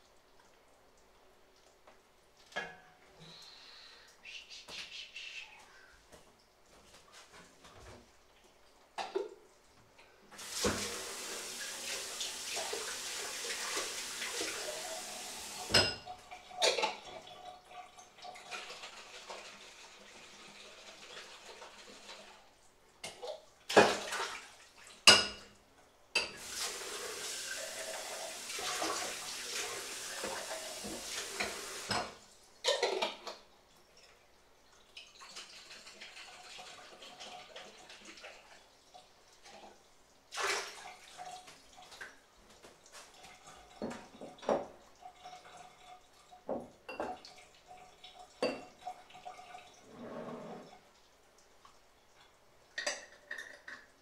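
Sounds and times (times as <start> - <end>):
tap running into a sink: 10.4 - 16.1, 26.2 - 32.2, 43.8 - 44.8.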